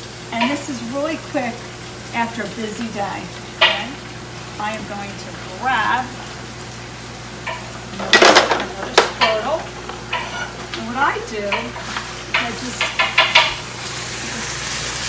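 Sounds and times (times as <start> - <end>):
meat sizzling in a pan: 0.0 - 15.0
wooden utensils clattering: 7.5 - 13.7
wooden spoons scraping a skillet: 7.5 - 15.0.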